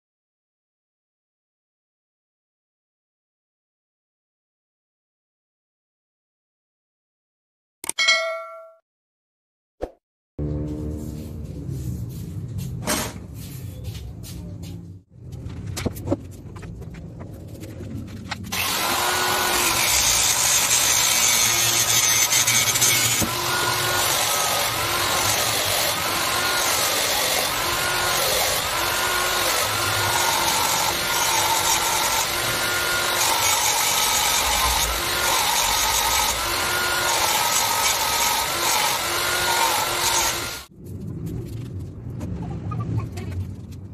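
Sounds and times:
angle grinder cutting plastic pipe: 18.5 - 40.7.

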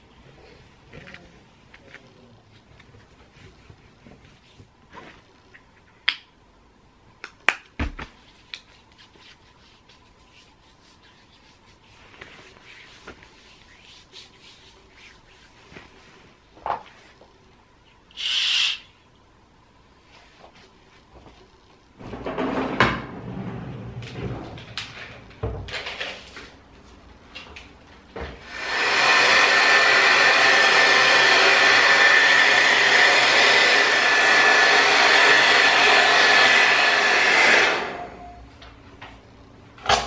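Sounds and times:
hair dryer blowing: 28.4 - 38.4.

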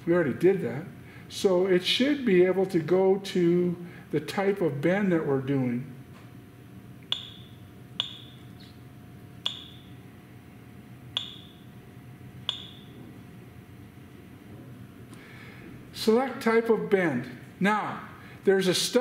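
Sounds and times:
faint steady hum: 0.0 - 19.0
keypad button clicks: 7.1 - 8.6, 9.4 - 9.9, 11.2 - 11.6, 12.5 - 13.0.

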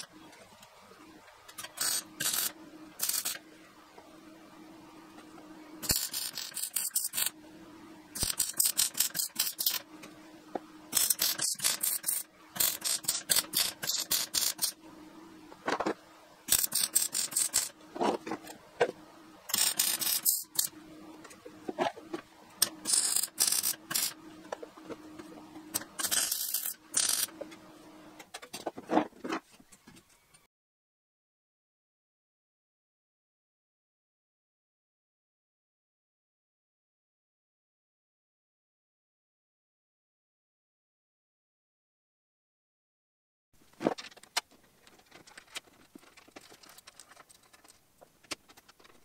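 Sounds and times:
steady low hum: 0.0 - 28.3
welding arc crackle: 1.6 - 3.4, 8.2 - 9.8, 10.9 - 14.8, 16.5 - 17.7, 19.5 - 20.7, 22.6 - 24.2.

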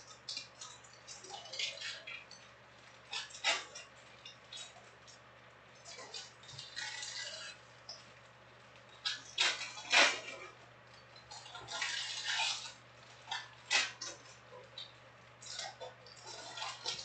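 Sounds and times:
foil wrappers crinkling and tearing: 11.4 - 14.3.

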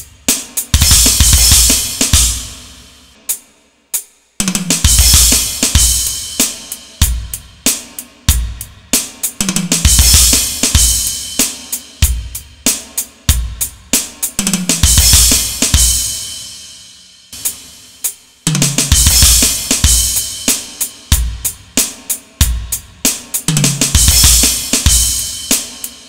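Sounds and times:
electronic drum beat: 0.0 - 26.0.

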